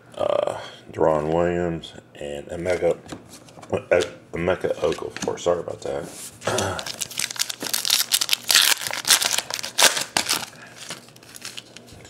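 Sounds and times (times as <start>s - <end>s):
foil wrapper tearing and crinkling: 6.5s - 11.9s.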